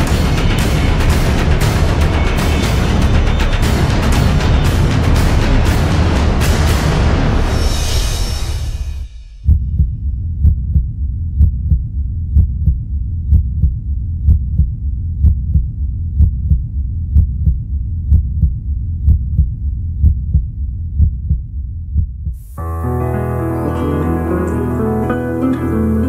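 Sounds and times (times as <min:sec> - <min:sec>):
low rumble: 0:00.0 - 0:22.6
heartbeat double thump: 0:09.4 - 0:22.6.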